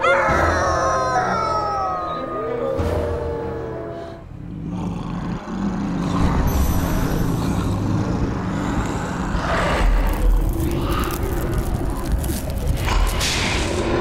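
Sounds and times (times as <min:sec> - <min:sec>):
low rumbling drone: 0:01.7 - 0:14.0.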